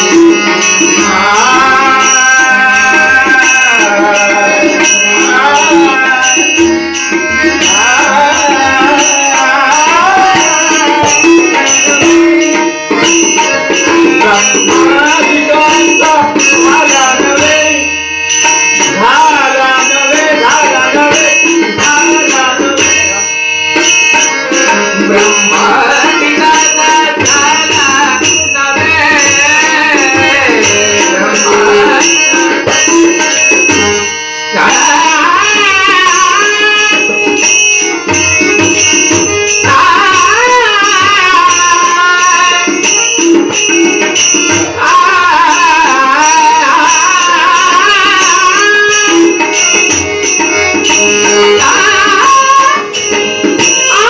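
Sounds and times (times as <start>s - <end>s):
hand cymbals struck: 0.0s - 54.0s
harmonium chords: 0.0s - 54.0s
man singing: 0.0s - 54.0s
hand drum: 34.6s - 54.0s.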